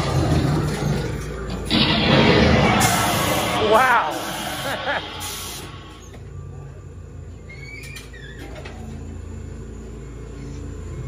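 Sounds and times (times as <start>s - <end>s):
low rumble: 1.7s - 6.1s.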